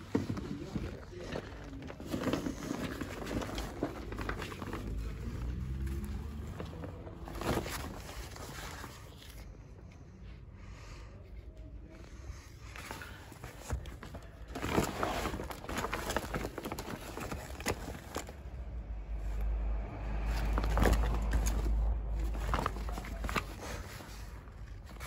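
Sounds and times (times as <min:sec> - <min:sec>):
nylon bag rustling: 0:00.0 - 0:09.5, 0:12.8 - 0:25.0
low handling rumble: 0:13.1 - 0:25.0.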